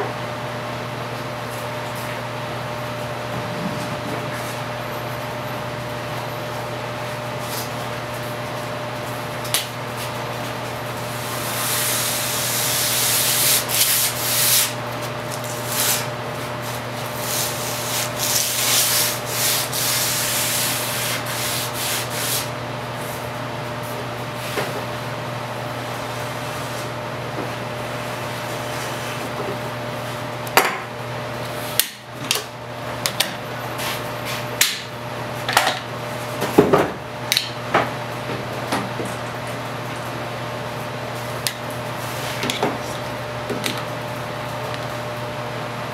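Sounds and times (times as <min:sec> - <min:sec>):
steady hum: 0:00.0 - 0:45.9.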